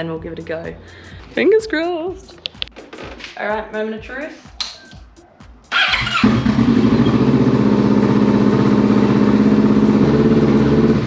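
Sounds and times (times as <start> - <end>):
electric starter cranking: 5.7 - 11.0
motorcycle engine idling: 5.7 - 11.0.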